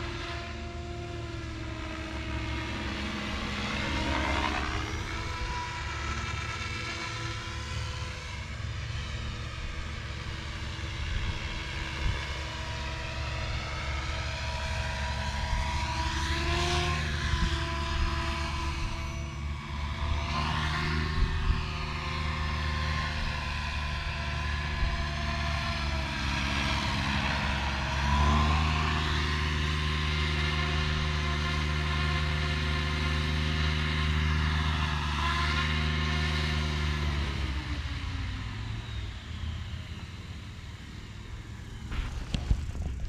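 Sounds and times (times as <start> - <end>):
model helicopter motor whining: 0.0 - 43.0.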